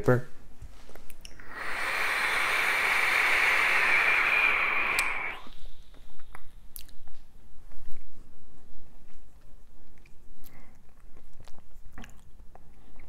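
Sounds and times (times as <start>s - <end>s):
hiss of air through atomizer: 1.3s - 6.8s.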